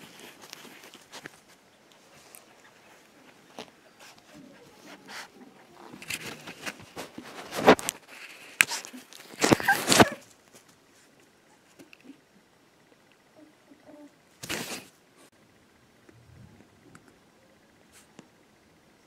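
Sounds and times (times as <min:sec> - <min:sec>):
puppy rustling against camera: 0:00.0 - 0:11.2.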